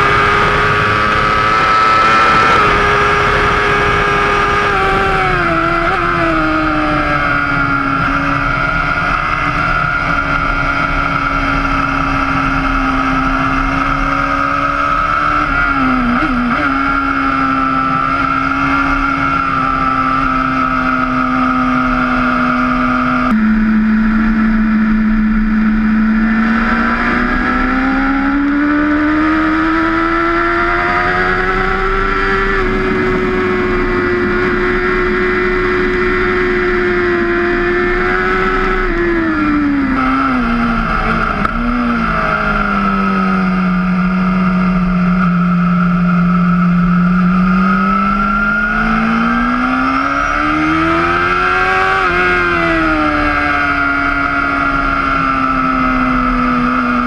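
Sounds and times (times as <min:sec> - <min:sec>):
motorcycle engine at high revs: 0:00.0 - 0:57.0
heavy wind rush: 0:30.6 - 0:42.9.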